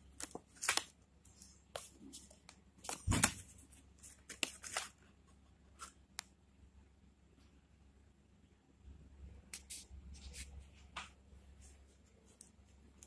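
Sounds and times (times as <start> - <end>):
hand rustling over phone and paper: 0.0 - 6.2.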